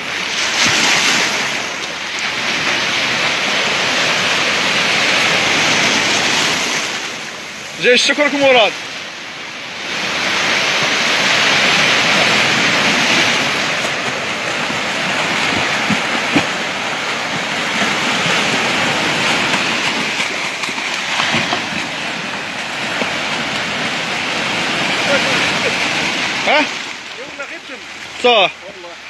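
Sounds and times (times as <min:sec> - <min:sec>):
waves breaking on rocks: 0:00.0 - 0:29.0.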